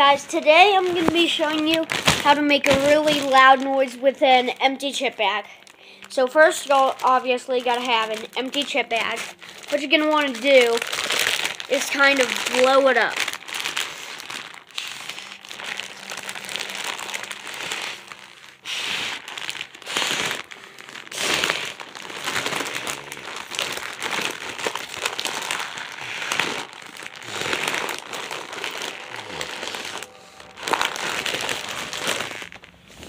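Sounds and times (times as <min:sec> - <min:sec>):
chip bag crinkling: 0:00.0 - 0:33.0
blowing into bag: 0:13.3 - 0:33.0.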